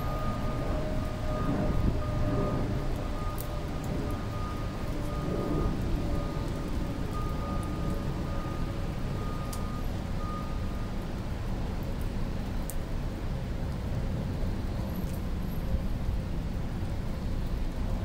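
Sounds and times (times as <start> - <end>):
rain on a parking deck: 0.0 - 18.0
faint ticks: 11.8 - 12.8.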